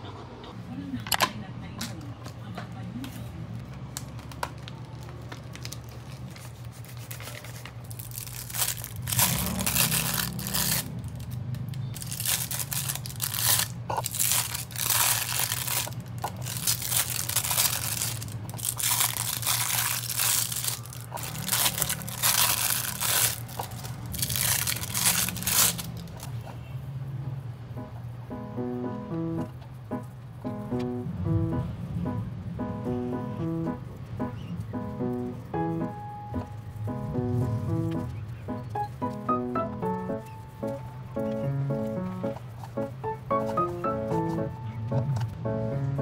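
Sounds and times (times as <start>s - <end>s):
material crinkling and tearing: 3.8s - 26.3s
steady low hum: 25.8s - 46.0s.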